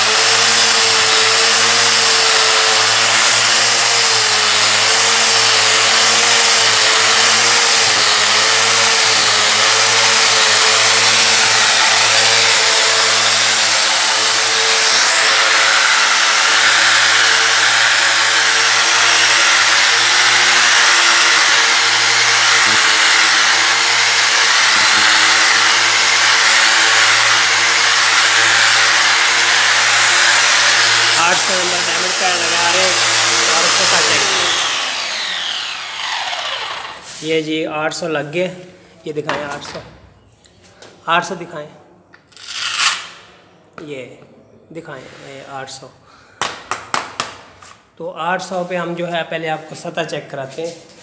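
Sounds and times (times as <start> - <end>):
angle grinder motor whine: 0.0 - 37.2
grinding hiss: 11.3 - 37.3.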